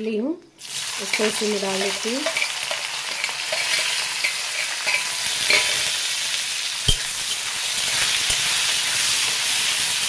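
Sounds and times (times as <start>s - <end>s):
onions sizzling in oil: 0.6s - 10.0s
metal spatula scraping a pan: 1.0s - 6.1s, 6.9s - 8.6s.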